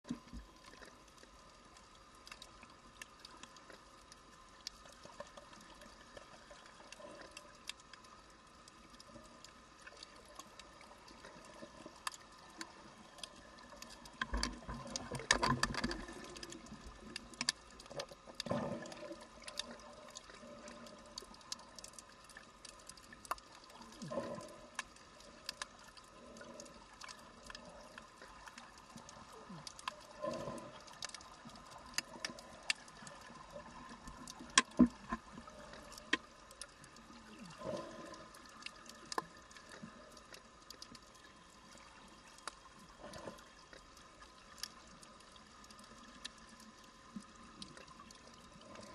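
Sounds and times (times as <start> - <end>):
faint steady hum: 0.1 - 48.9
underwater crackle of clicks: 0.1 - 48.9.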